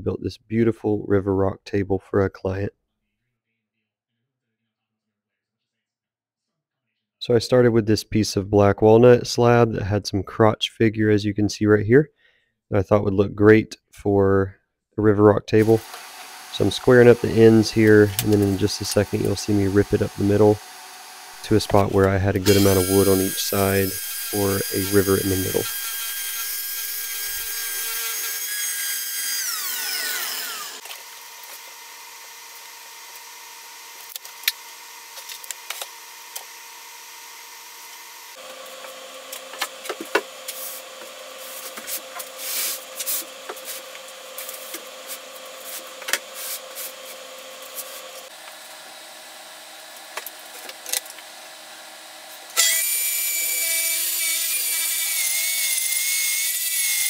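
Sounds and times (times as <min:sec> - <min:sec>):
circular saw cutting wood: 0:15.6 - 0:48.5, 0:52.4 - 0:57.0.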